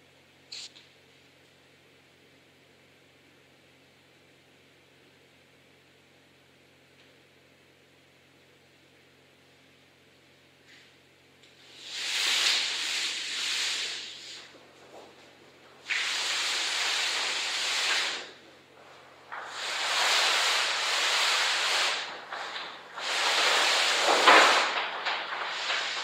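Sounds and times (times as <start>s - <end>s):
paper scraping across floor: 11.6s - 26.0s.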